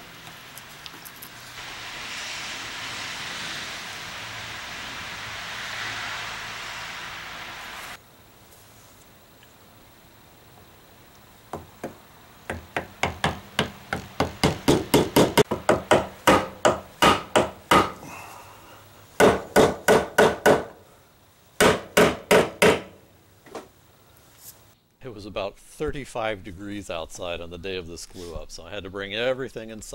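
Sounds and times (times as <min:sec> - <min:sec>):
hammer tapping wood: 0:11.5 - 0:18.0, 0:19.2 - 0:20.8, 0:21.6 - 0:22.9.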